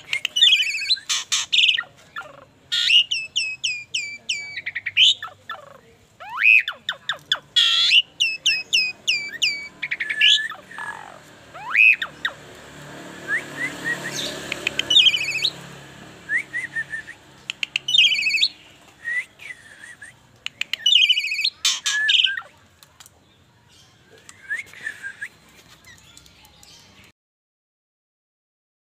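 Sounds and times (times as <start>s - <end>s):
starling singing: 0.0s - 22.6s.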